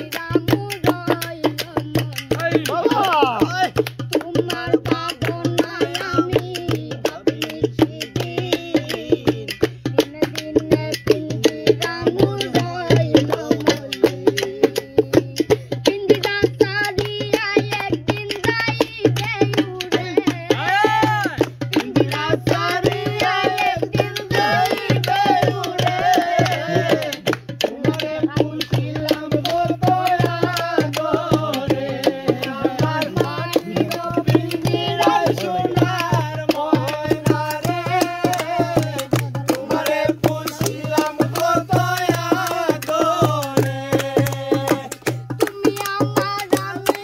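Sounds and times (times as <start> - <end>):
hand drumming on pot and jug: 0.0 - 47.0
man singing folk song: 31.1 - 38.9.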